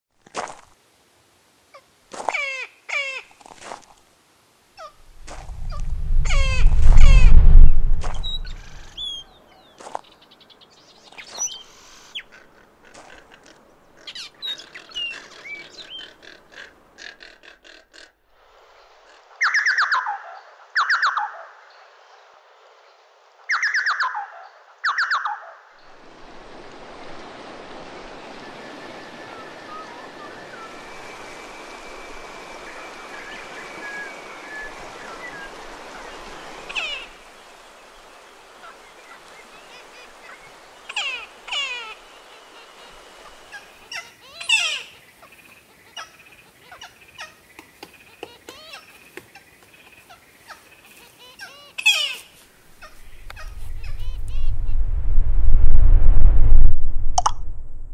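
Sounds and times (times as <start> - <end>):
birds chirping: 5.5 - 17.0, 28.5 - 54.8
loud downward-sweeping bird calls: 6.2 - 9.3.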